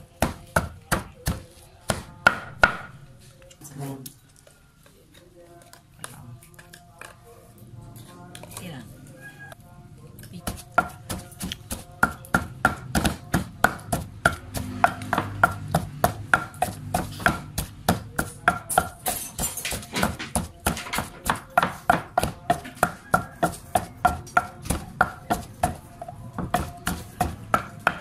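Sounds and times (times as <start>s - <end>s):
wooden pestle pounding in mortar: 0.1s - 3.0s, 10.4s - 28.0s.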